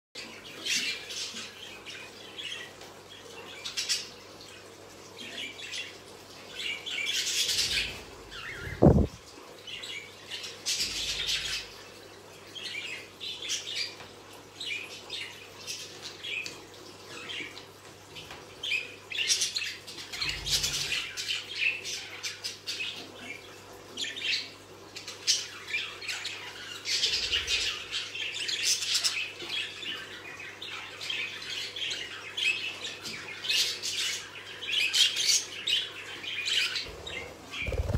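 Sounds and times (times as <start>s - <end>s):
budgerigars chirping and chattering: 6.6s - 9.2s, 24.0s - 37.9s.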